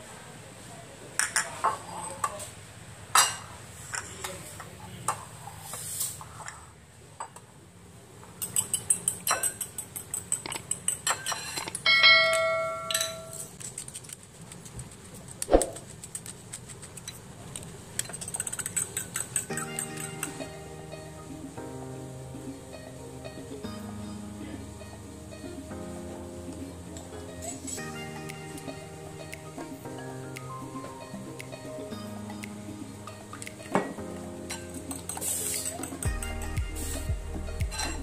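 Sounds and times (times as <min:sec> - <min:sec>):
cutlery clinking on ceramic bowls: 0:08.4 - 0:13.5, 0:18.0 - 0:20.4.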